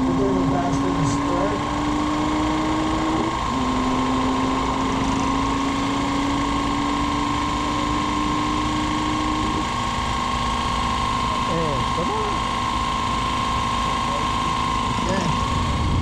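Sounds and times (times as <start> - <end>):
high whine: 0.0 - 16.0
vehicle engine running: 0.0 - 16.0.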